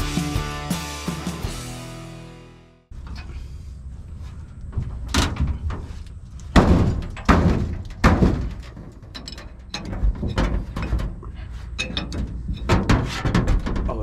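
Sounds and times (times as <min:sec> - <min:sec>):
metal knocks and clunks: 0:04.3 - 0:14.0.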